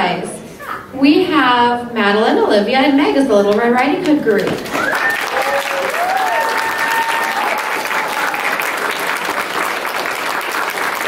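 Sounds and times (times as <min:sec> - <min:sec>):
audience applauding: 0:04.4 - 0:11.0
drawn-out cheers: 0:04.7 - 0:08.7.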